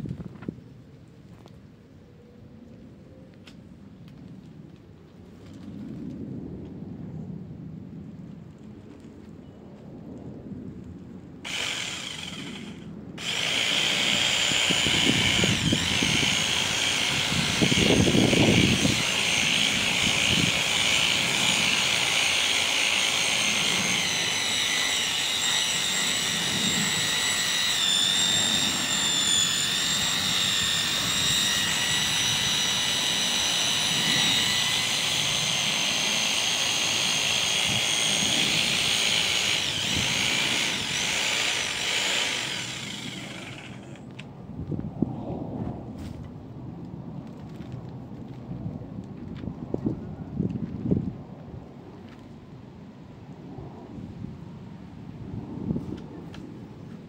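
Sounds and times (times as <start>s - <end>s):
power tool motor whine: 11.4s - 44.2s.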